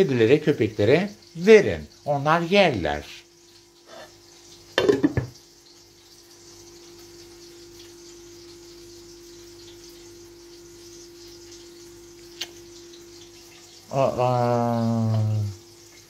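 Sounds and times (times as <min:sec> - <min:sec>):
faint hiss: 0:00.0 - 0:04.2, 0:13.8 - 0:15.6.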